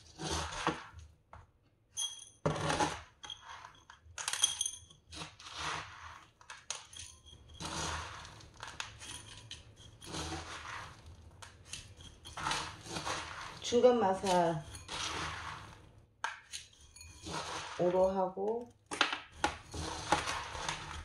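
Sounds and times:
gravel rattling in plastic pot: 17.2 - 21.0.

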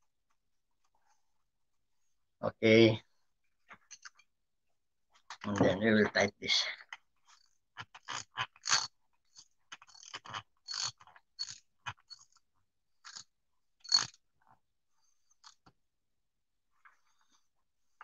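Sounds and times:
socket wrench clicking and scraping: 7.3 - 12.4, 13.0 - 14.2.

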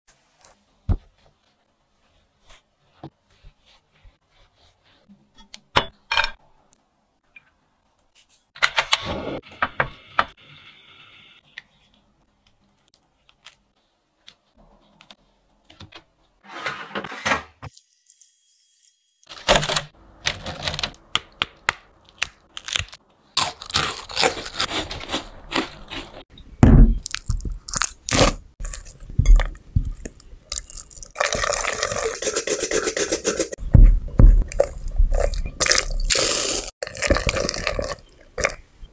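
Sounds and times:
utensils and bowls clicking: 29.2 - 33.6
rapid scraping in glass bowl: 31.3 - 33.6.

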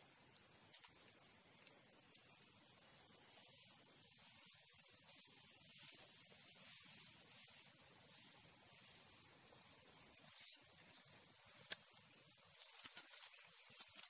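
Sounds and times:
high-pitched insect chorus: 0.0 - 14.0
faint ticks: 0.2 - 2.6, 10.0 - 14.0.

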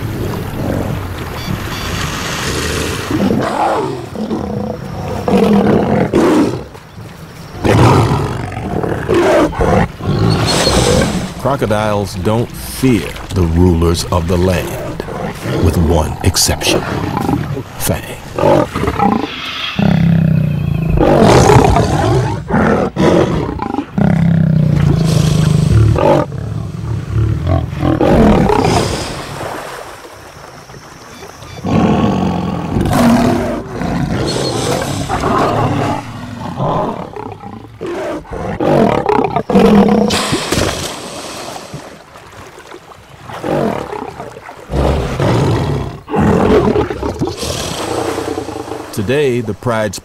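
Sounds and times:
lions growling: 2.8 - 6.8, 7.6 - 11.6, 12.3 - 29.0, 31.6 - 40.8, 43.3 - 49.0.

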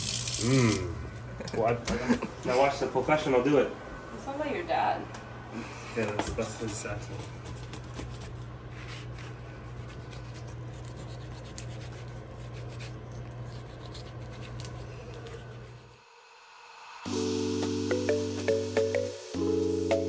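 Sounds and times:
knife scraping fish scales: 6.6 - 16.0.

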